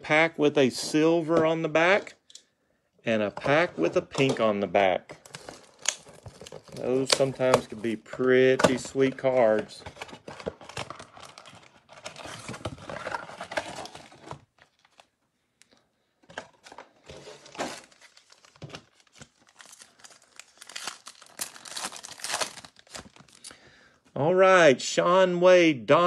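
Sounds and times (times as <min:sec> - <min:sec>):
foil packs crinkling: 0:17.4 - 0:23.6
foil pack tearing: 0:19.6 - 0:23.0.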